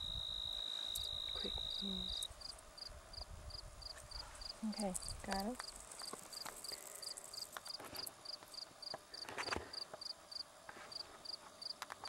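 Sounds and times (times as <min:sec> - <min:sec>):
insect chirping in short pulses: 0:00.0 - 0:03.2
faint clicks and rustles: 0:03.9 - 0:10.1.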